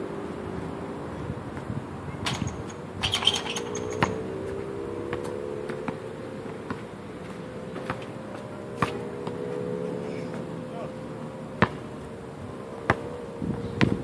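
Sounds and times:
buzzing hum: 0.0s - 14.0s.

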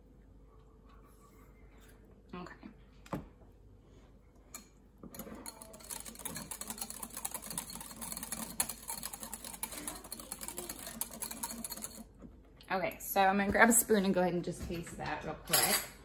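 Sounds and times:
whisk beating in a bowl: 5.0s - 12.3s.

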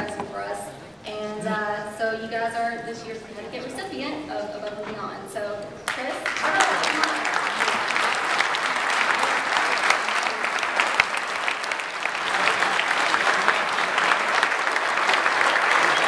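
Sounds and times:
crowd applauding: 5.9s - 16.0s.

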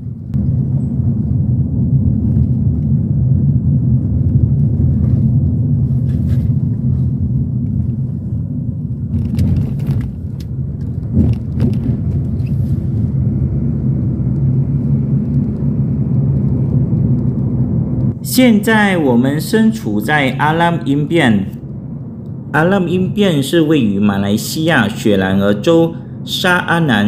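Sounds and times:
car interior rumble: 0.0s - 18.2s.

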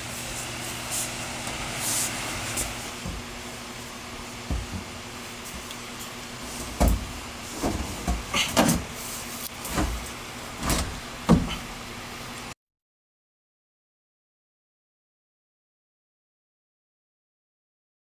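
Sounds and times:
wooden panel thumping on car: 10.6s - 11.6s.

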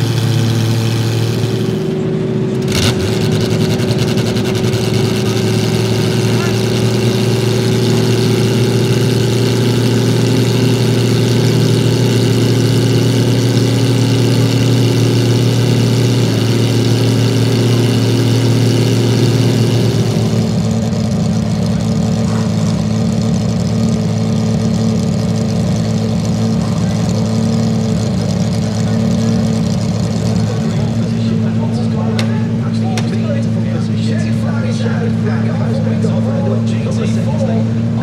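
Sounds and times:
racing engine fast idle: 0.0s - 38.0s.

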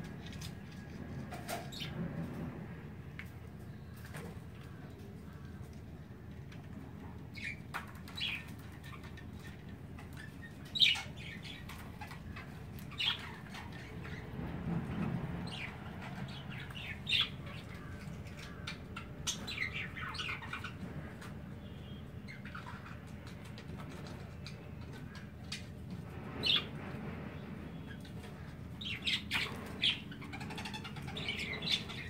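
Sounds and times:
budgies chirping: 7.3s - 14.3s, 15.0s - 25.8s, 26.4s - 26.7s, 27.8s - 32.0s.

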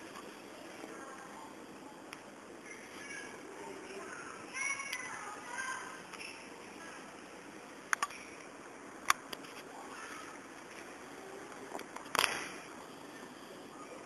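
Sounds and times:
outdoor background noise: 0.0s - 14.0s.

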